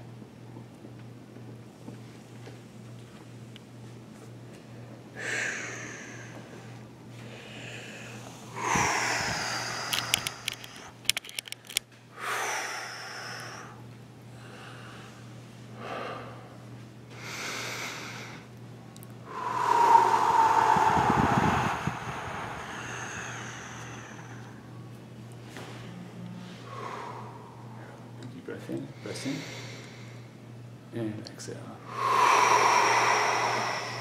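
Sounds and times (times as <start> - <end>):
person exhaling hard: 5.2 - 6.6, 7.3 - 10.9, 19.3 - 24.6, 26.6 - 28.0, 31.9 - 34.0.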